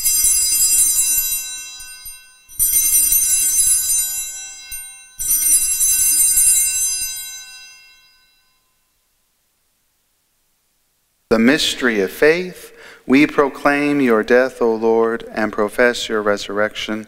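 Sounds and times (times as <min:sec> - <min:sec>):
altar bells ringing: 0:00.0 - 0:09.0.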